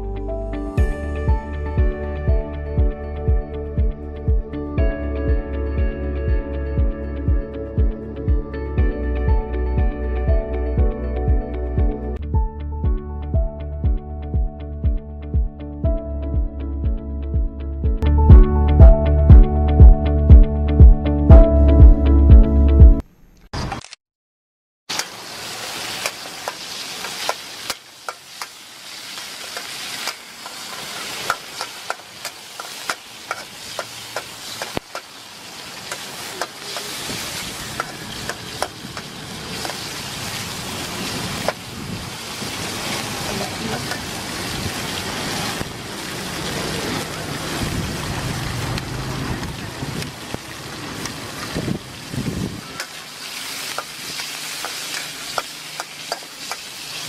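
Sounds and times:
chicken sizzling in oil: 0:24.9 - 0:57.0.

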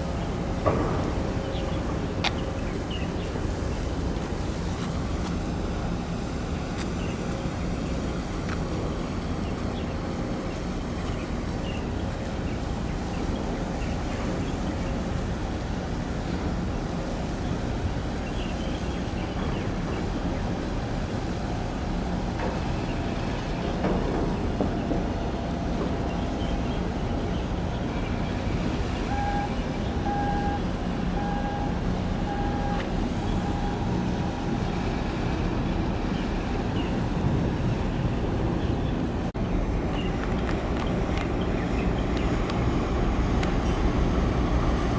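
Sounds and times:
container ship engine rumble: 0:00.0 - 0:44.9
harbour noise: 0:00.0 - 0:44.9
short beeps: 0:29.1 - 0:30.6, 0:31.2 - 0:33.9.

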